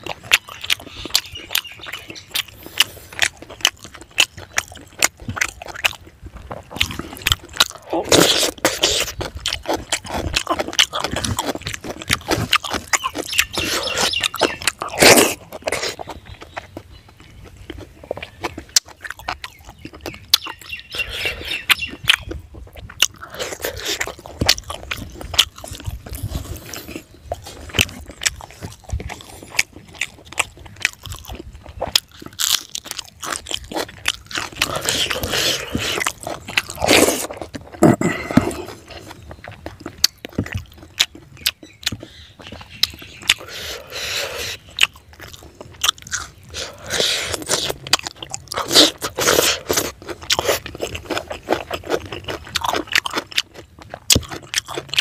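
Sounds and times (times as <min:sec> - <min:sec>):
biting clicks and mouth sounds: 0:00.0 - 0:55.0
person chewing and crunching food: 0:00.0 - 0:55.0.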